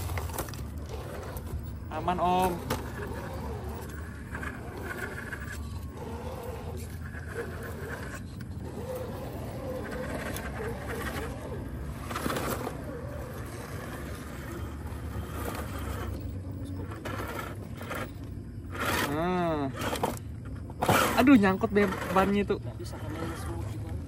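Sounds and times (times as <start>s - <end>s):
tyres scrabbling on rock: 0.0s - 19.2s
steady low hum: 0.0s - 24.0s.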